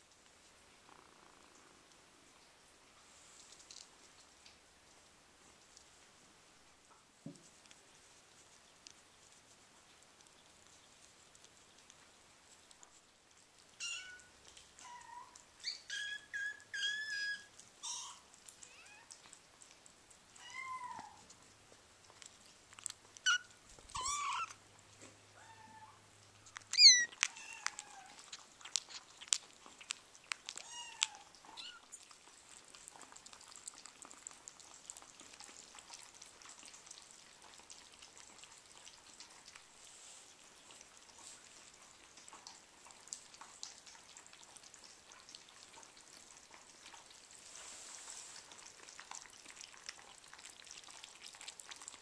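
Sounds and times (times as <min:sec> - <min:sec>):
kittens eating dry food clicks: 0:03.4 - 0:06.2, 0:07.2 - 0:25.6, 0:26.2 - 0:47.4, 0:48.4 - 0:52.0
kittens meowing: 0:13.8 - 0:19.1, 0:23.2 - 0:24.6, 0:25.4 - 0:26.0, 0:26.7 - 0:28.3.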